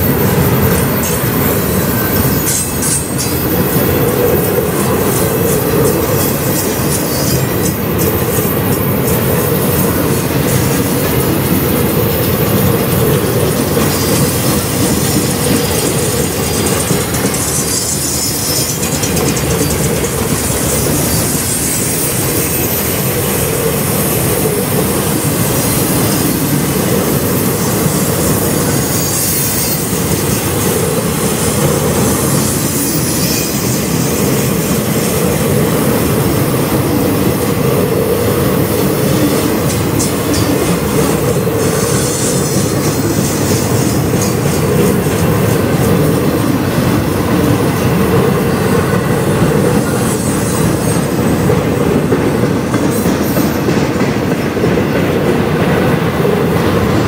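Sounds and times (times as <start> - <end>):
train wheels clattering on rails: 0.0 - 57.0
wheel flanges squealing: 0.2 - 23.3.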